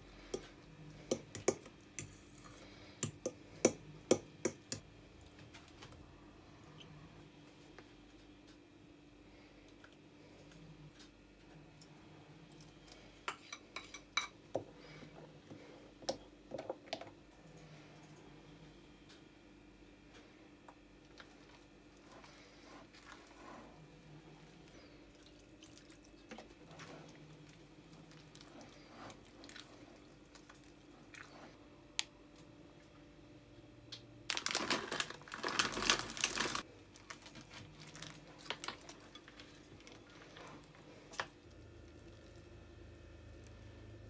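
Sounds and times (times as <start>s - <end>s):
chocolate chips poured from plastic bag: 34.3s - 36.6s.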